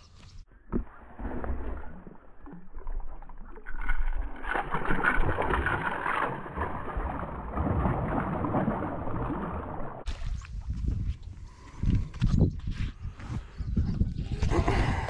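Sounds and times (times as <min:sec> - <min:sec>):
fish thrashing and splashing water: 0:01.1 - 0:10.7.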